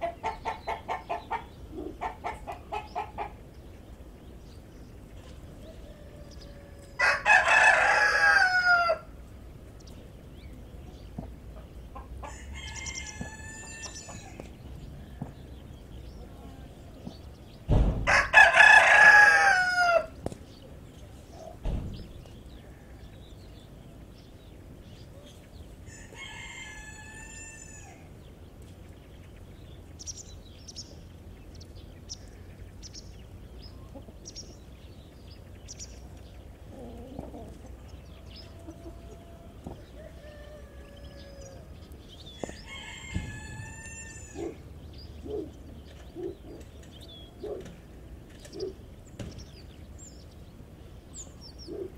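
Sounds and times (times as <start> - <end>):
chicks peeping: 0.0 - 51.9
soft low hen calls: 0.0 - 51.9
rooster crowing: 5.5 - 9.1, 12.2 - 14.5, 18.0 - 20.2, 25.9 - 28.1, 38.3 - 44.6.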